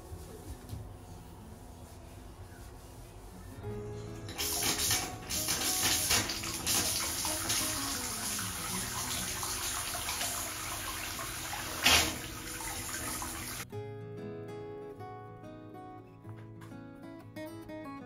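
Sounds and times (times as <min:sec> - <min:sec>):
acoustic guitar music: 0:03.4 - 0:18.0
water pouring into bathtub: 0:04.3 - 0:13.6.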